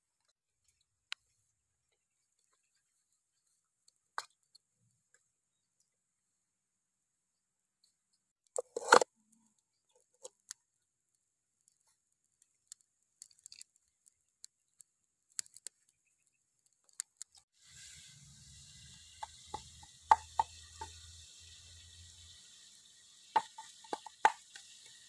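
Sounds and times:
fire clicks and crackles: 0:08.4 - 0:25.0
steady hiss: 0:17.6 - 0:25.0.

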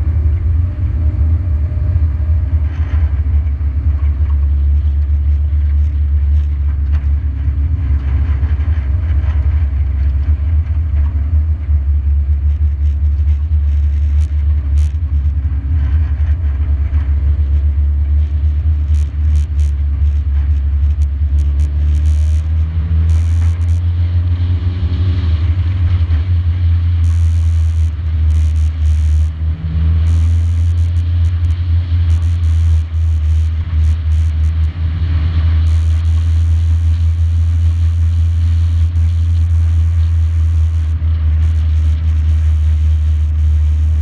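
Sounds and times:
car engine drone: 0:00.0 - 0:44.0
sharp clicks: 0:18.2 - 0:23.9, 0:27.0 - 0:29.4, 0:30.0 - 0:34.7, 0:35.6 - 0:44.0.

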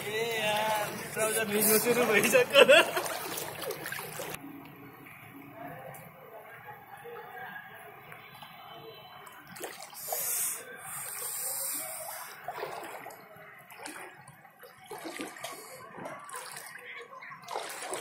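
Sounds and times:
floodwater sloshing and splashing: 0:00.0 - 0:06.1, 0:07.2 - 0:18.0
rushing hiss of water: 0:10.0 - 0:12.4.

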